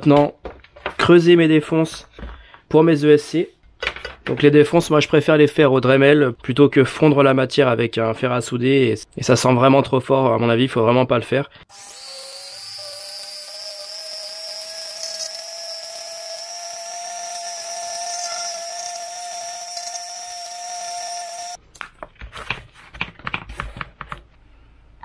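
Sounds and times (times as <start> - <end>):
rotary tool whining: 11.7 - 21.6.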